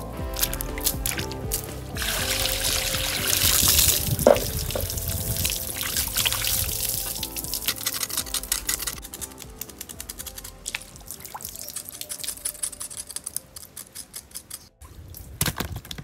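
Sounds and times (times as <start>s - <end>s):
soft background music: 0.0s - 14.8s
water pouring into basin: 0.4s - 9.1s
water sloshing and splashing: 0.4s - 9.6s.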